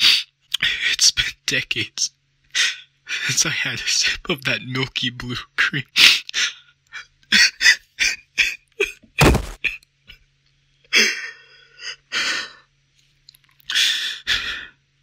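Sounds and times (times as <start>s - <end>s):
man crying and sobbing: 5.9s - 9.6s, 10.9s - 12.7s.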